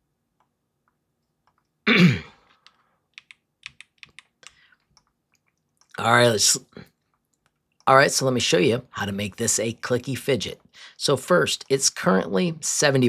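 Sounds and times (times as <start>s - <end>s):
keyboard and mouse clicks: 0.4s - 1.8s, 2.5s - 6.0s
person clearing throat: 1.9s - 2.5s.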